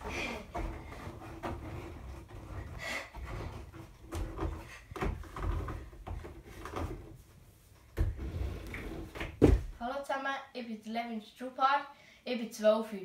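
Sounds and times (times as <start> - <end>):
wooden holds knocking and creaking: 0.0 - 7.2.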